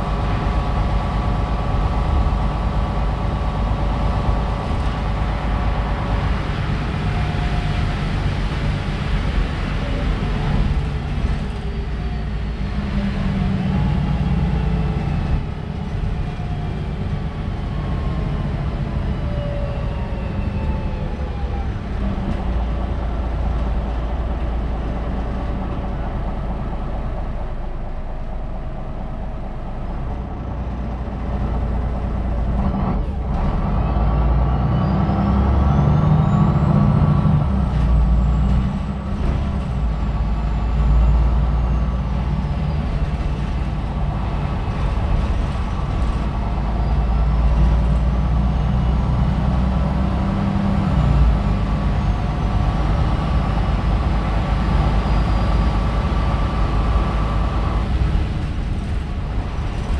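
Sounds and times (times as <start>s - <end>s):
bus diesel engine running: 0.0s - 59.9s.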